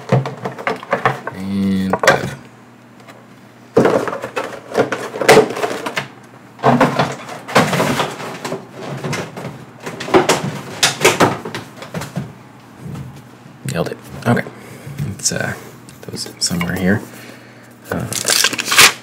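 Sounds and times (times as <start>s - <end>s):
packaging rustling and crinkling: 17.9s - 19.0s.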